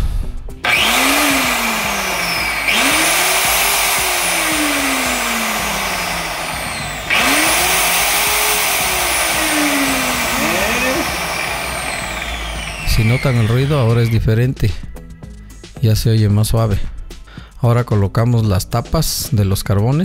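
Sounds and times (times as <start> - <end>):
angle grinder spinning up and down: 0.6 - 14.2.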